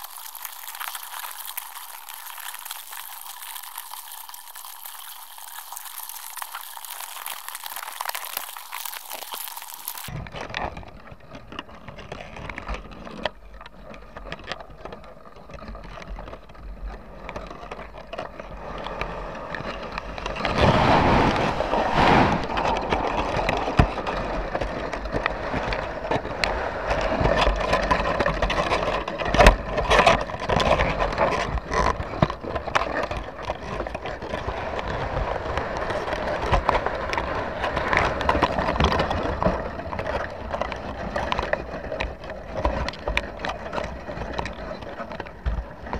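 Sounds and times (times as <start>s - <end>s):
crabs scraping and clicking: 0.0s - 20.6s, 22.4s - 45.9s
water rushing: 20.2s - 24.4s.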